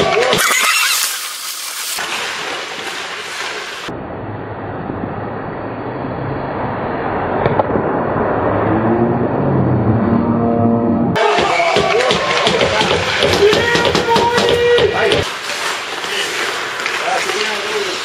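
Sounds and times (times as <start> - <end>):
ice hockey play rumble: 11.2 - 18.0.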